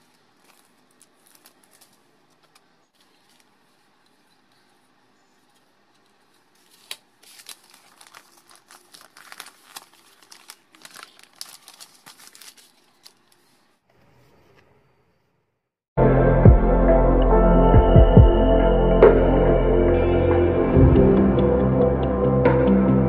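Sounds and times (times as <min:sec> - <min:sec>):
wrapping paper rustling: 0:00.0 - 0:13.8
faint irregular crackles: 0:00.0 - 0:14.7.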